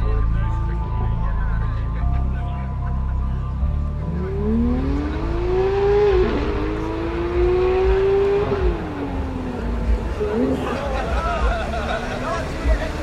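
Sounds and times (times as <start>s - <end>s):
car engine accelerating hard: 3.9s - 13.0s.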